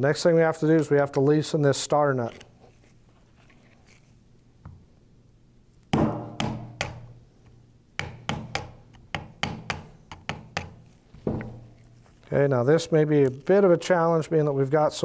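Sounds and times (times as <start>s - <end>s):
metal tool knocking on nut: 8.0s - 11.7s.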